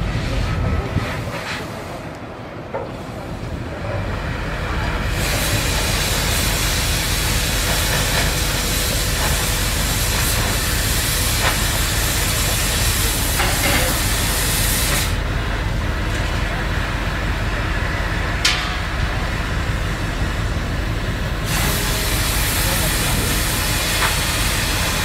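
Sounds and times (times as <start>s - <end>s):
cutting torch hissing: 4.2s - 18.4s, 19.3s - 25.0s.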